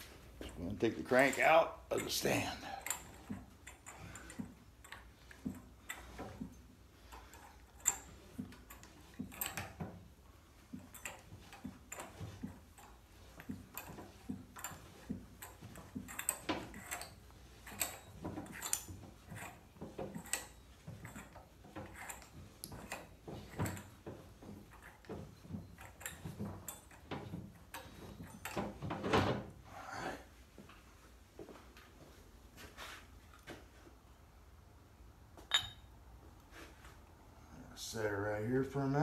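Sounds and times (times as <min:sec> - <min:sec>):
light metallic clicks and clinks: 0:00.4 - 0:10.0, 0:10.6 - 0:28.8, 0:35.4 - 0:36.0.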